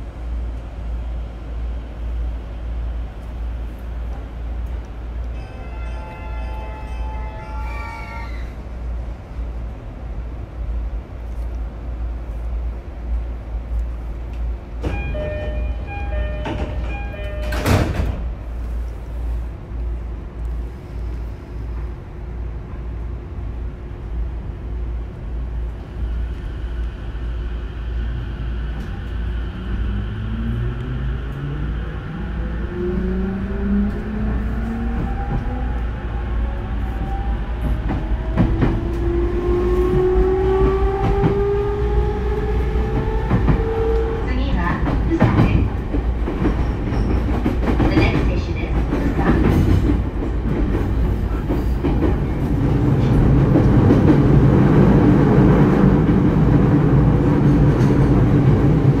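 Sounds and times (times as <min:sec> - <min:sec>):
door chime: 0:14.9 - 0:18.0.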